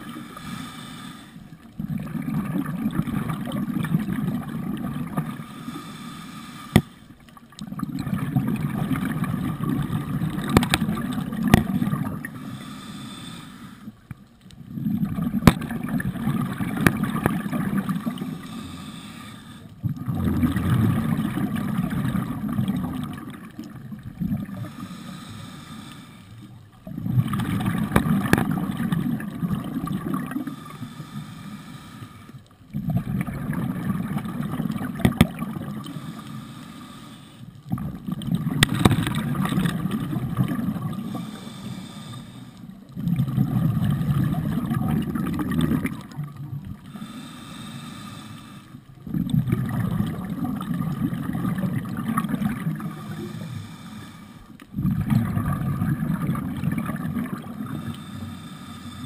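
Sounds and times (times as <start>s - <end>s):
exhaled bubbles underwater: 1.4s - 5.7s, 7.0s - 12.7s, 14.1s - 18.9s, 19.5s - 25.2s, 26.3s - 31.0s, 32.4s - 36.3s, 37.5s - 48.1s, 48.8s - 53.9s, 54.5s - 59.0s.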